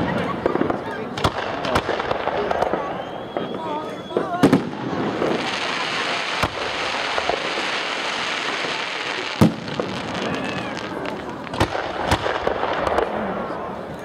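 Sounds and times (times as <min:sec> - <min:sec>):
firework crackling hiss: 0:00.4 - 0:13.3
firework shells bursting bangs: 0:04.3 - 0:13.2.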